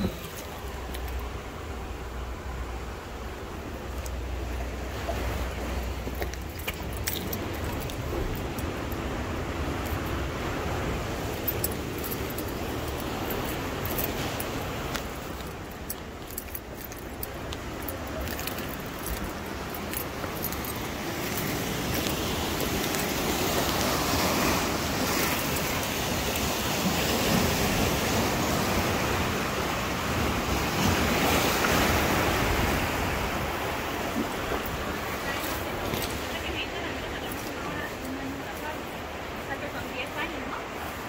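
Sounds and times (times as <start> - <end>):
surf breaking on rocky shore: 17.3 - 40.8.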